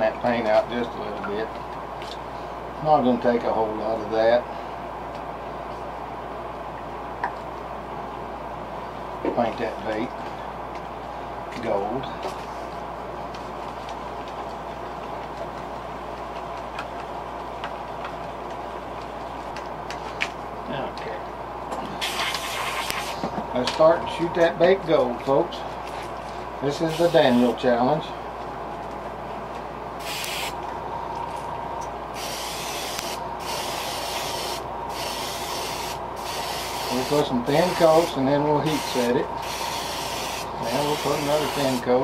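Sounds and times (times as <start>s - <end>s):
steady background hum: 0.0s - 42.0s
air compressor humming: 21.7s - 28.7s, 29.3s - 42.0s
airbrush spraying hiss: 30.0s - 30.6s, 32.2s - 41.8s.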